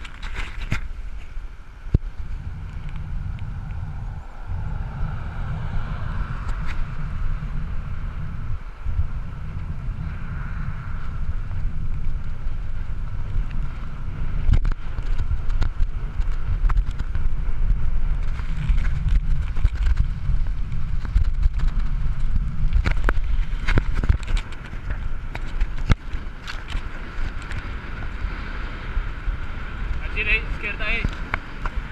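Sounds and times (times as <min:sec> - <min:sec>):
wind buffeting microphone: 0:00.0 - 0:31.9.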